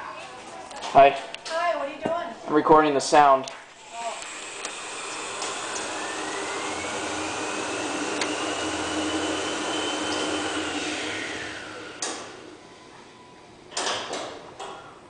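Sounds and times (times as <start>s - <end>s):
elevator pump humming and whining: 3.8s - 15.0s.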